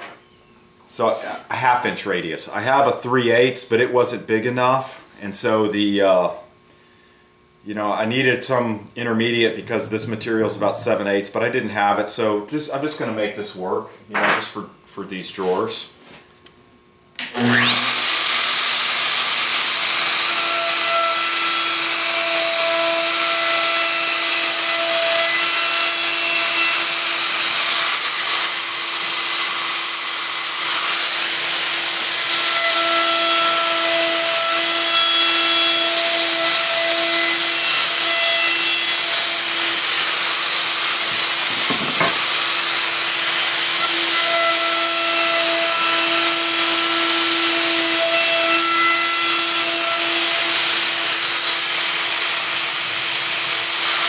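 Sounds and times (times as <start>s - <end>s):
shop vacuum running: 17.2s - 33.9s, 35.2s - 45.0s, 45.7s - 54.0s
router high whine: 17.2s - 54.0s.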